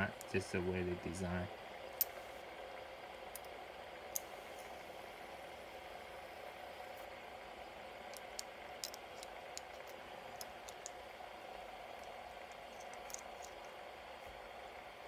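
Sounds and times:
fidget spinners whirring: 0:03.3 - 0:15.0.

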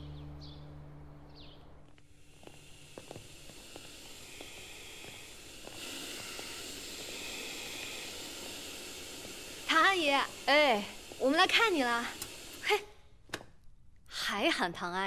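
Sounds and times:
footsteps on tiled floor: 0:01.8 - 0:06.8
vacuum cleaner running on carpet: 0:02.1 - 0:12.7.

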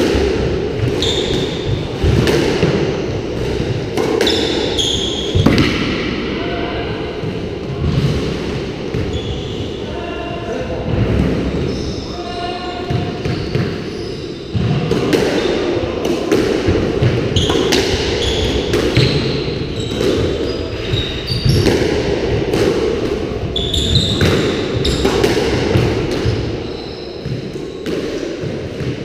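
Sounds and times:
squash ball hits echoing: 0:00.0 - 0:06.4, 0:07.0 - 0:09.1, 0:12.7 - 0:29.0
shoes squeaking on wooden floor: 0:01.0 - 0:01.7, 0:23.5 - 0:25.1.

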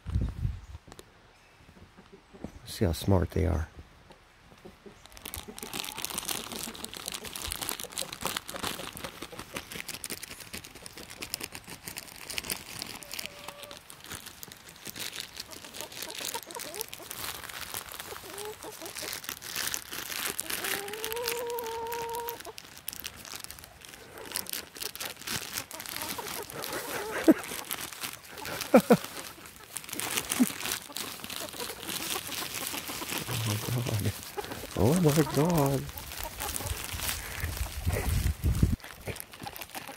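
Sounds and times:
plastic bag crinkling: 0:05.0 - 0:39.9
footsteps crunching dry leaves: 0:05.1 - 0:39.9
chicken calling: 0:12.8 - 0:13.9, 0:15.4 - 0:19.3, 0:20.1 - 0:22.6, 0:24.0 - 0:38.2.

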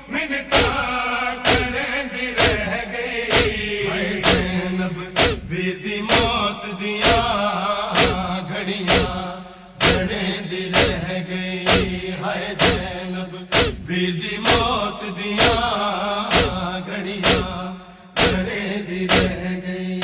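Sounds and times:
men chanting a lament: 0:00.0 - 0:20.0
hands striking chests: 0:00.6 - 0:00.8, 0:01.5 - 0:01.8, 0:02.4 - 0:02.7, 0:03.3 - 0:03.6, 0:04.2 - 0:04.6, 0:05.2 - 0:05.5, 0:06.1 - 0:06.4, 0:08.0 - 0:08.3, 0:08.9 - 0:09.2, 0:09.8 - 0:10.2, 0:10.8 - 0:11.1, 0:11.7 - 0:12.0, 0:12.6 - 0:12.9, 0:13.5 - 0:13.8, 0:15.4 - 0:15.7, 0:16.3 - 0:17.6, 0:18.2 - 0:18.5, 0:19.1 - 0:19.4.

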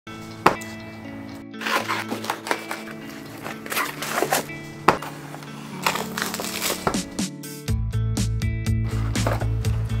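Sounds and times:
background music with held notes: 0:00.1 - 0:10.0
cardboard box flap rustling: 0:01.6 - 0:05.2, 0:05.8 - 0:07.2.

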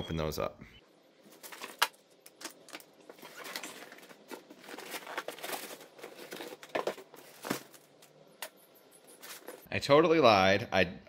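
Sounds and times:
packing material crinkling: 0:01.3 - 0:08.1.

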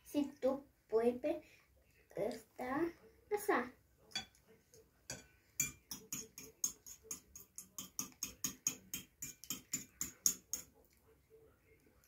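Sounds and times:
fork beating egg on plate: 0:05.1 - 0:11.0.

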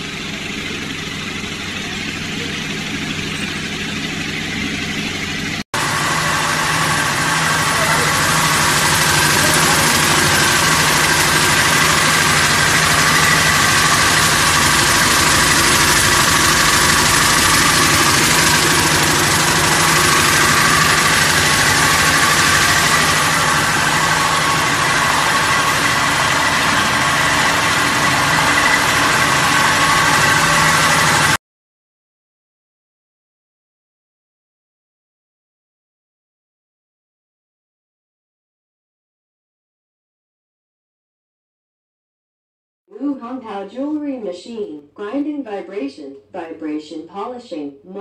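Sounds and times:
low motor hum: 0:00.0 - 0:31.4.

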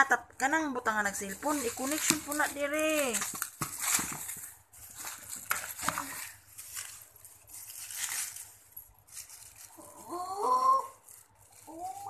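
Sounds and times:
plastic packaging crinkling: 0:00.8 - 0:12.0
child's drawn-out voice: 0:10.0 - 0:11.0.

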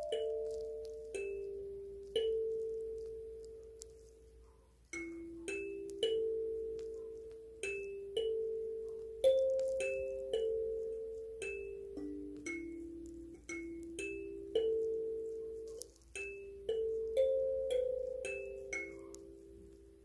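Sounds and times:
kalimba melody: 0:00.0 - 0:04.1, 0:05.0 - 0:19.9.

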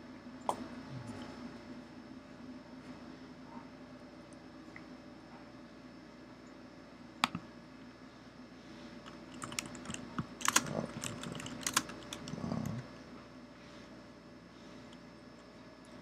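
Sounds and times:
typing on a keyboard: 0:09.1 - 0:12.8.

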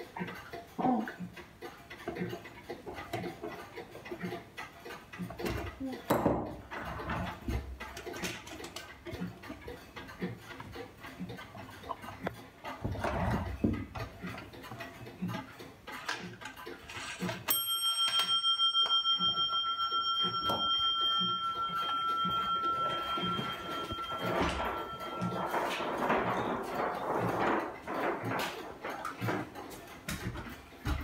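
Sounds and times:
clock hands clicking: 0:00.0 - 0:31.0
clock bell ringing: 0:17.5 - 0:26.8.

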